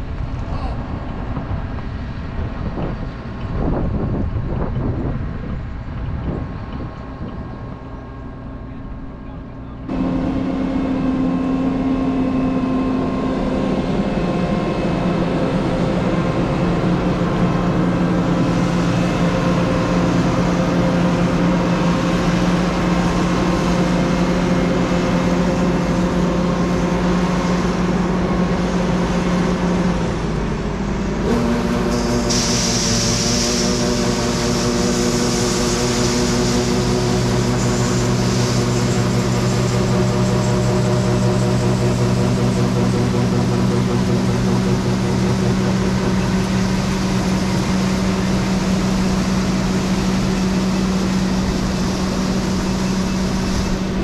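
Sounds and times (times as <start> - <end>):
engine machinery humming: 0.0 - 54.0
steady hiss: 31.8 - 39.6.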